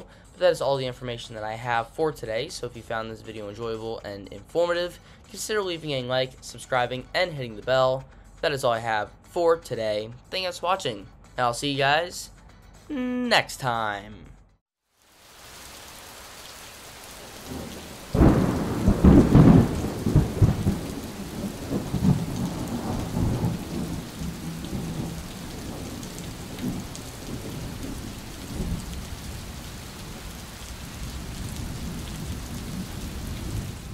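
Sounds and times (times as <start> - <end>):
steady rain: 14.9 - 33.9
faint thunder rumbles: 17.0 - 33.9
loud thunderclap: 17.4 - 33.9.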